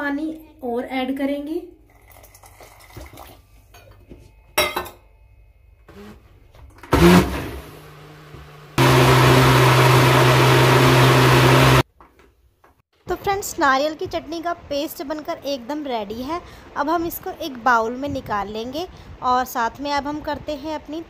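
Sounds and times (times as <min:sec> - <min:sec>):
mixer grinder motor whirring: 0:05.9 - 0:06.2, 0:06.8 - 0:11.8.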